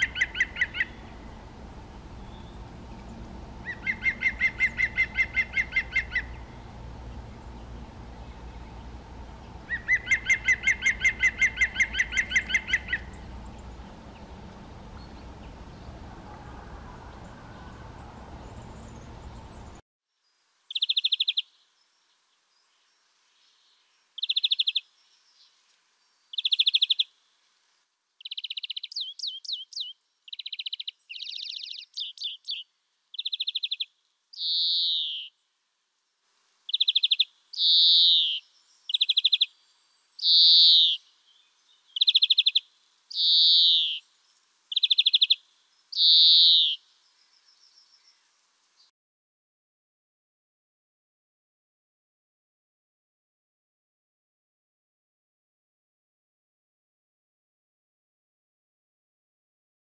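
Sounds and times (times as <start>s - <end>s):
woodpecker calling: 0.0s - 1.4s, 2.2s - 6.6s, 9.6s - 19.7s, 33.2s - 35.4s, 36.7s - 39.6s, 40.2s - 41.1s, 41.9s - 44.0s, 44.7s - 46.8s
steady low background noise: 0.0s - 48.9s.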